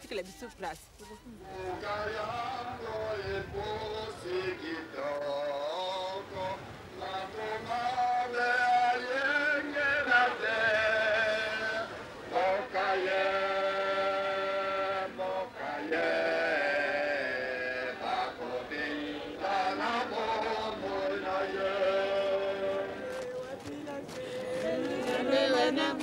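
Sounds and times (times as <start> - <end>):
man singing a mourning song: 1.4 - 26.0
short breaths: 24.1 - 24.6.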